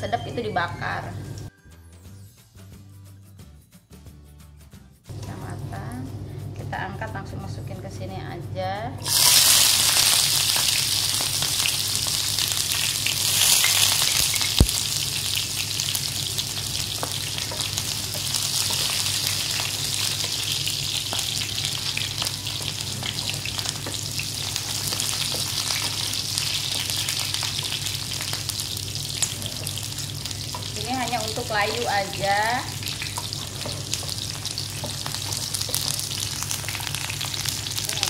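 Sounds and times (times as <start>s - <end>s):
shallots sizzling in hot oil: 9.0s - 38.0s.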